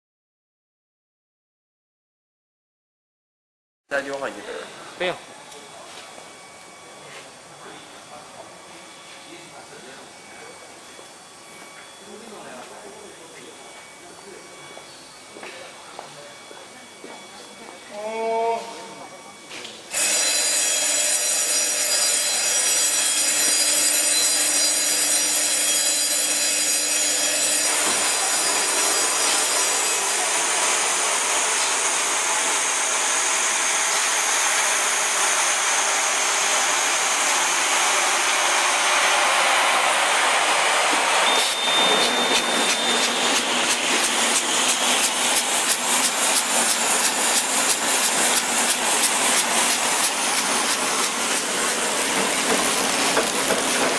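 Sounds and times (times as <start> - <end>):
packing machinery whining: 4.2 - 53.9
fast regular machine clacking: 42.4 - 53.9.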